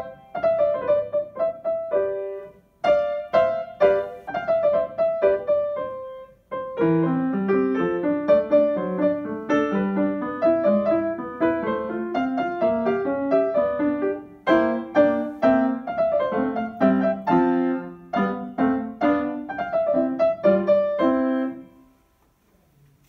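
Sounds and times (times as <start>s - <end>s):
grand piano playing: 0.0s - 21.9s.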